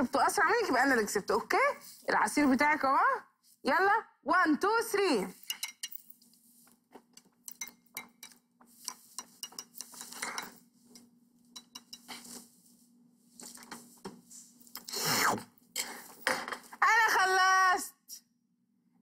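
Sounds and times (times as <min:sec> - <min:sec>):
glass clinking: 0:05.4 - 0:06.1, 0:07.5 - 0:10.6, 0:11.5 - 0:12.1
slurping through straws: 0:14.8 - 0:15.5.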